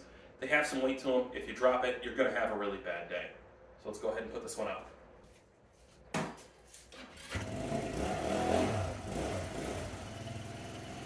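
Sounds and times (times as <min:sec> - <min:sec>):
motor scooter engine: 0:07.0 - 0:11.0.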